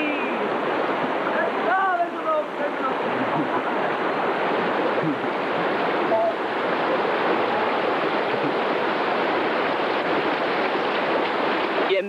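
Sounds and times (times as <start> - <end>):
rushing water noise: 0.0 - 12.0
faint voices: 1.2 - 8.8.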